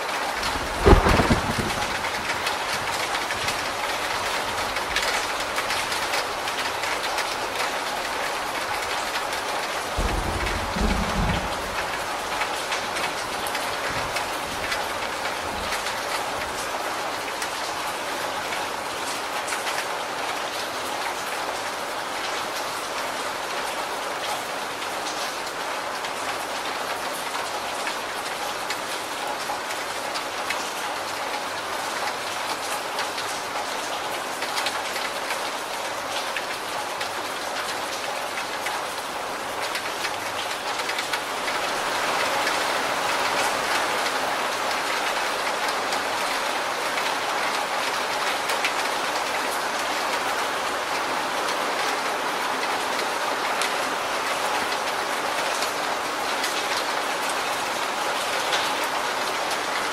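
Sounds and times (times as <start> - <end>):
steady rain: 0.0 - 59.9.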